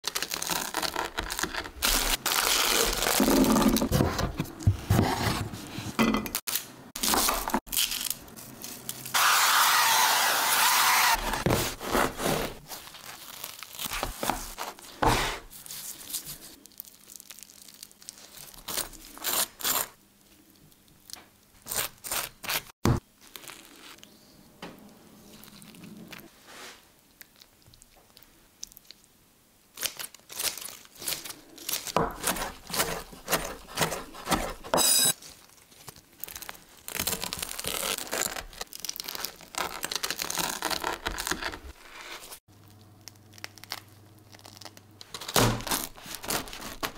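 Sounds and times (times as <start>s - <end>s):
bread knife sawing crusty baguette: 9.2s - 12.6s, 32.2s - 35.1s.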